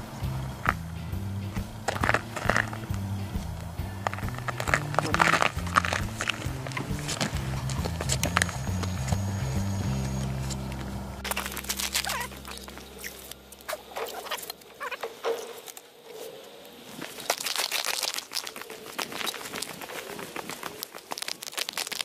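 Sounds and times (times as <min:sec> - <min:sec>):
background music: 0:00.0 - 0:13.7
crunching and scraping on snowy ice: 0:01.6 - 0:22.0.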